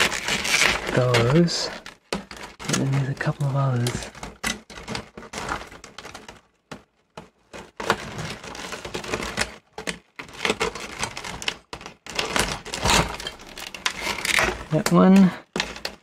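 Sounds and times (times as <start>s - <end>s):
wires rustling against plastic: 0.0s - 16.0s.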